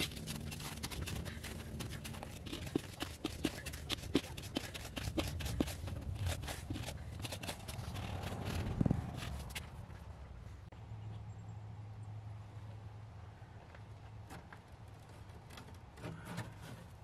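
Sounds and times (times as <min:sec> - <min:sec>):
trowel scraping gravelly soil: 0:00.0 - 0:09.9.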